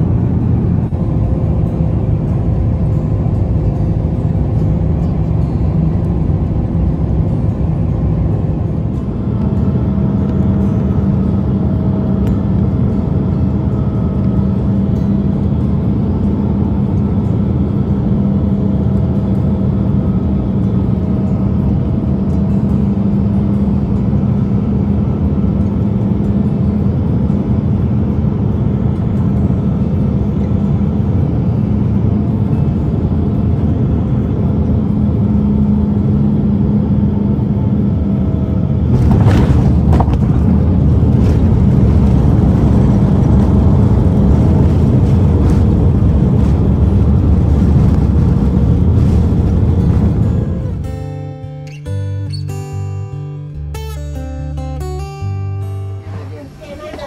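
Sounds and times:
airliner cabin engine drone: 0:00.0 - 0:57.0
wheels touching down on runway: 0:38.9 - 0:50.8.

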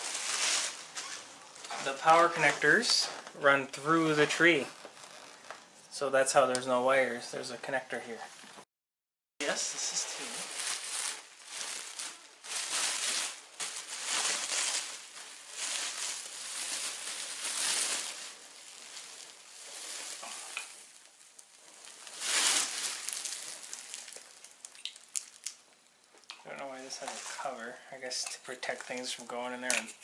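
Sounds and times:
plastic branches rustling: 0:00.0 - 0:05.6, 0:09.5 - 0:25.7, 0:26.8 - 0:27.6
bubble wrap crinkling: 0:00.0 - 0:05.7, 0:09.5 - 0:27.6.

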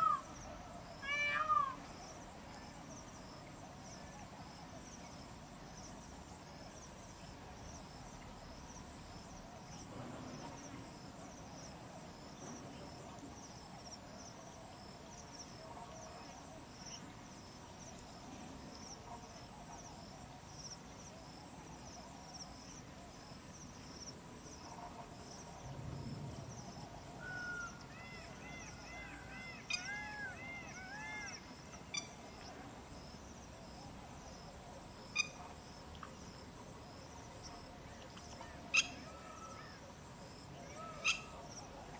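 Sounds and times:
insect chirping: 0:00.0 - 0:41.9.

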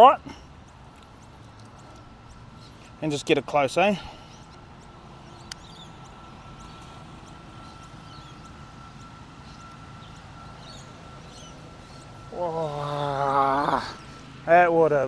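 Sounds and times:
faint steady high tone: 0:02.1 - 0:15.0
man exclaiming whoa: 0:12.3 - 0:14.0.

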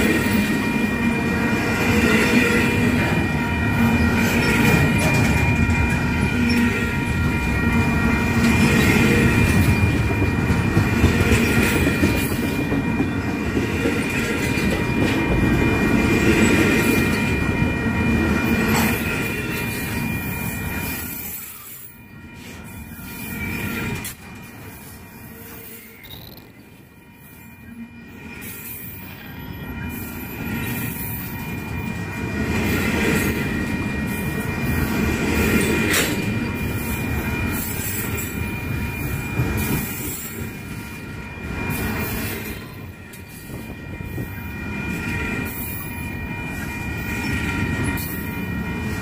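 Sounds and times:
train wheels rumbling on rail: 0:00.0 - 0:49.0
high-pitched wheel squeal: 0:25.1 - 0:27.8.

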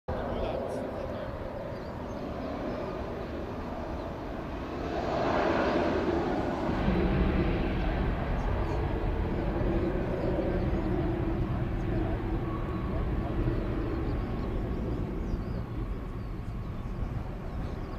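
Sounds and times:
jet engines running up: 0:00.2 - 0:17.9
deep rumble: 0:03.5 - 0:17.9.

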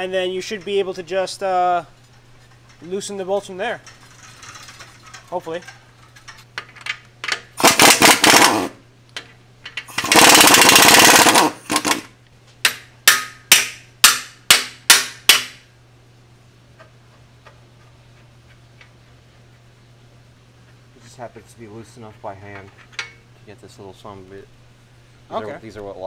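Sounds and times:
air impact wrench hammering: 0:07.6 - 0:08.8, 0:09.7 - 0:15.7.

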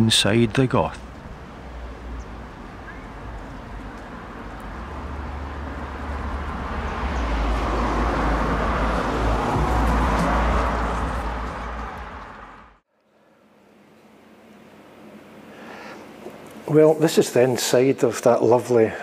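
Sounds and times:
road vehicle passing: 0:01.0 - 0:12.8.

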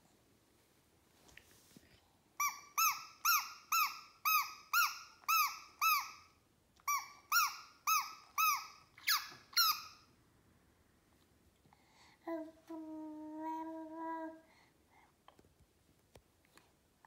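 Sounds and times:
toy bird whistle chirping: 0:02.4 - 0:06.3, 0:06.9 - 0:10.0.

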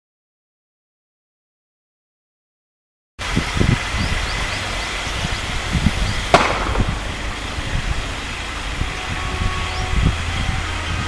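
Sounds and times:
wind rumble on microphone: 0:03.2 - 0:11.0.

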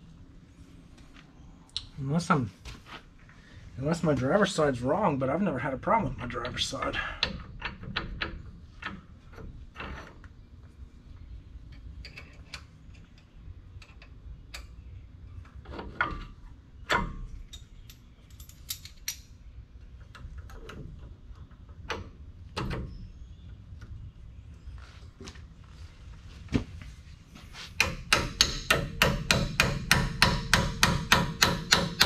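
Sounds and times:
low steady rumble: 0:00.0 - 0:32.0
metallic clicks of brake parts: 0:16.9 - 0:19.3.

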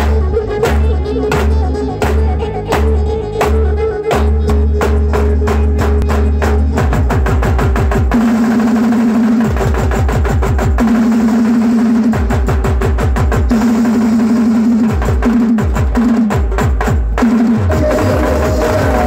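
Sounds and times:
deep bass line: 0:00.0 - 0:08.1, 0:17.5 - 0:19.0
drums beaten with sticks: 0:00.0 - 0:19.0.

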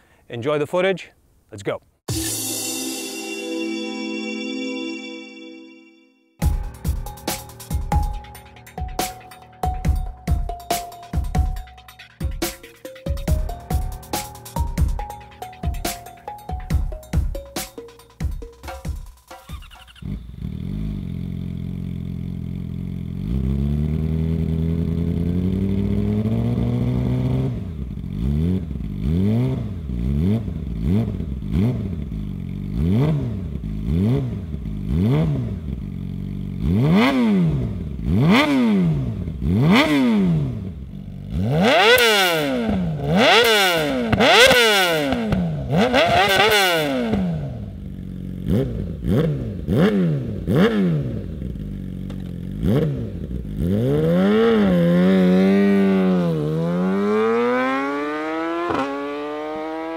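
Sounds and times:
motorcycle engine revving: 0:19.5 - 0:59.9.

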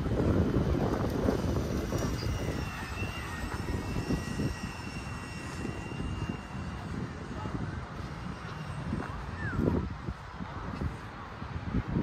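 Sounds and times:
aircraft engine whine: 0:00.0 - 0:12.0
wind rumbling on microphone: 0:00.0 - 0:12.0.

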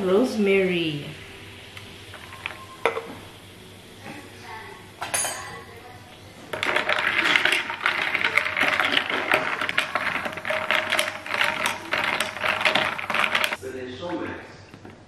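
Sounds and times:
ice clinking in glass: 0:05.0 - 0:05.6.

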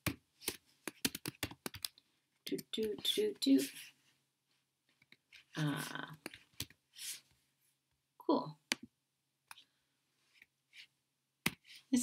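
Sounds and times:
person speaking: 0:02.4 - 0:04.0, 0:05.3 - 0:07.2, 0:08.2 - 0:08.7, 0:11.7 - 0:12.0.

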